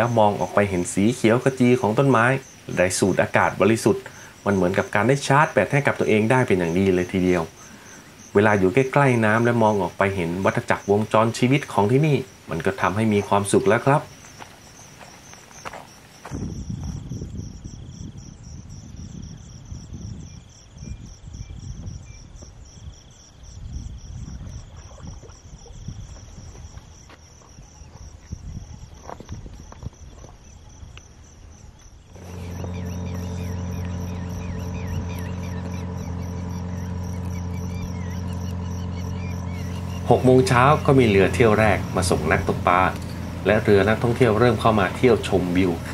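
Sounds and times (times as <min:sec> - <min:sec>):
boat engine droning: 0:00.0 - 0:16.2, 0:32.1 - 0:45.9
insects trilling: 0:00.0 - 0:45.9.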